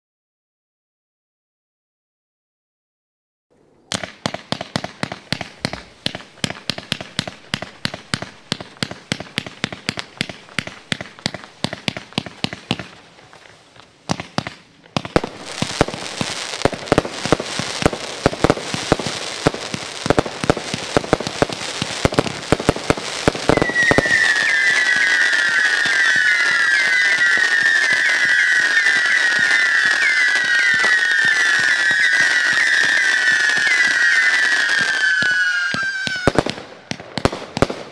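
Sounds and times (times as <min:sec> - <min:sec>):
firework crackling bursts: 0:03.9 - 0:37.9
firework launch reports: 0:14.1 - 0:37.9
firework whistles falling in pitch: 0:23.3 - 0:36.4.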